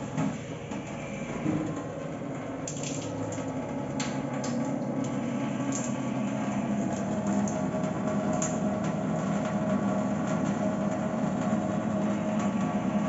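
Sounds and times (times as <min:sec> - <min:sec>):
pump humming: 0:00.0 - 0:13.0
water splashing into metal sink: 0:01.4 - 0:06.0, 0:06.8 - 0:09.0.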